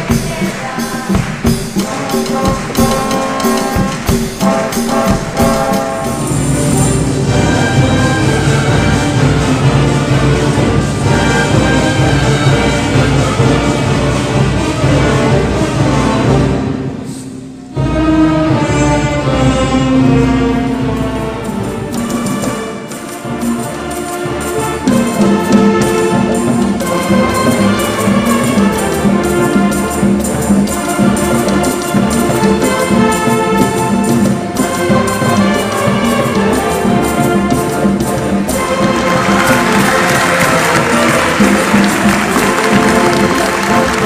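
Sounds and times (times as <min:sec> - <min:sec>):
audience applause: 0:00.0 - 0:05.8, 0:38.4 - 0:44.0
orchestra playing strings and brass: 0:00.0 - 0:44.0.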